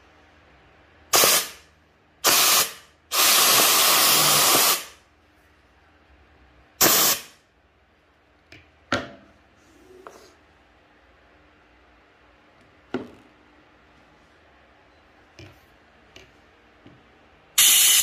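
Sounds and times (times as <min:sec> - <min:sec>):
air vacuum gun hissing: 0:01.1 - 0:01.6, 0:02.2 - 0:05.0, 0:06.8 - 0:07.4, 0:17.6 - 0:18.0.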